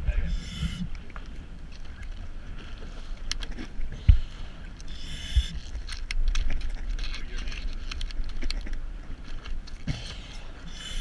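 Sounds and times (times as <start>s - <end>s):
wind rumbling on microphone: 0.0s - 11.0s
diving gear clicks and knocks: 5.6s - 10.0s.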